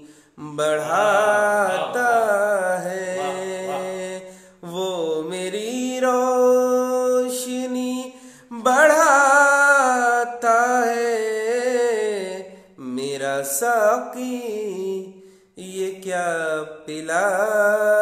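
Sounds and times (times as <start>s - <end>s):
man singing solo: 0.5s - 4.9s.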